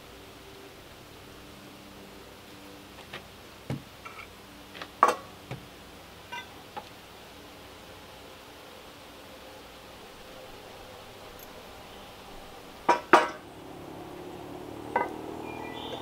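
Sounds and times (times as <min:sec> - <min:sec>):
metal pots and pans clinking: 0:06.3 - 0:06.5, 0:12.9 - 0:13.4.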